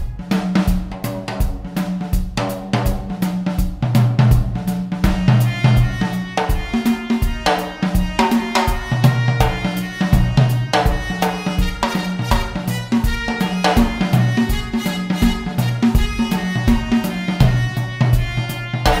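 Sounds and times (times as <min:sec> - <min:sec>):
drum kit steady beat: 0:00.0 - 0:19.0
bass line: 0:04.0 - 0:19.0.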